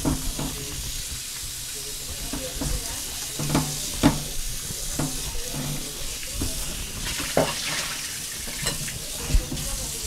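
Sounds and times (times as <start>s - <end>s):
tap running into metal sink: 0.0s - 0.8s, 2.2s - 9.8s
knocks and clinks in sink: 2.3s - 7.9s, 8.5s - 9.7s.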